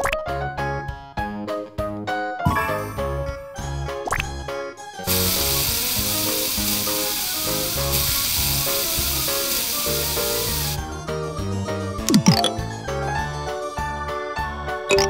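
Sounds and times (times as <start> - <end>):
cheerful children's music: 0.0 - 6.3, 10.8 - 15.0
spray can hissing: 5.1 - 10.8.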